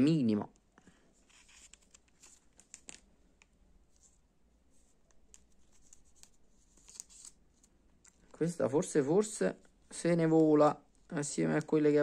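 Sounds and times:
cards being handled: 0:01.1 - 0:04.2, 0:04.8 - 0:08.5.

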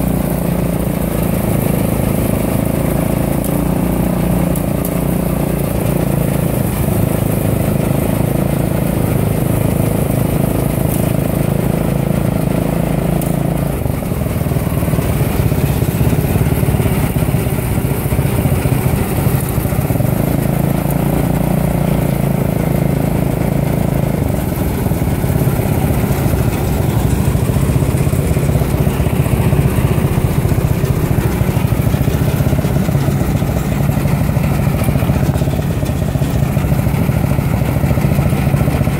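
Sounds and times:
combine harvester drone: 0:00.0 - 0:38.9.

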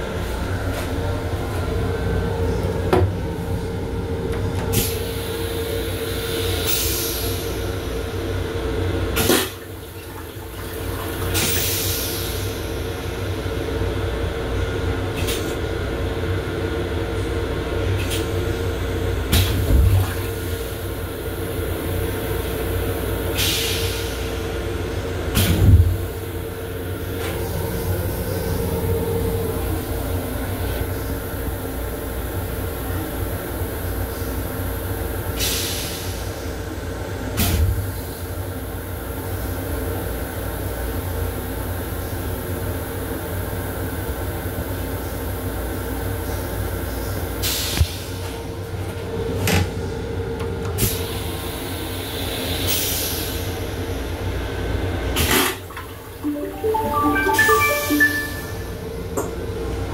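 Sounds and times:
train rumbling and humming: 0:00.0 - 0:09.9.

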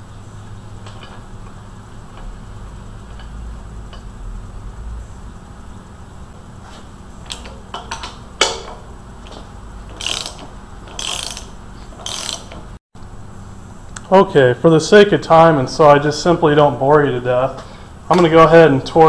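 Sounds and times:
ratchet wrench clicking: 0:07.3 - 0:12.7.

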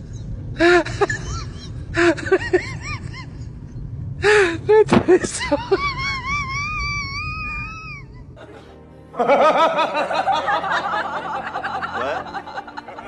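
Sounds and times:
laughter: 0:00.7 - 0:03.4, 0:05.1 - 0:06.6, 0:08.4 - 0:13.0
background music: 0:05.3 - 0:13.0.

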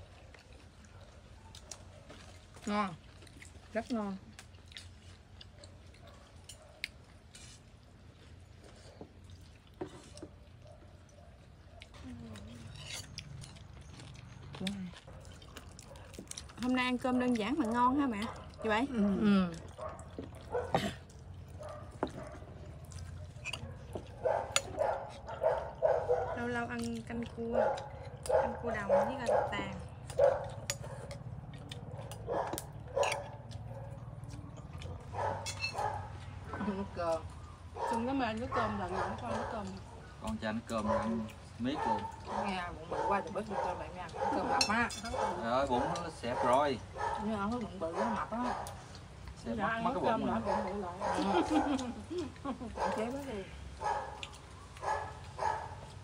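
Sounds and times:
utensils clicking against bowls: 0:35.4 - 0:35.8.

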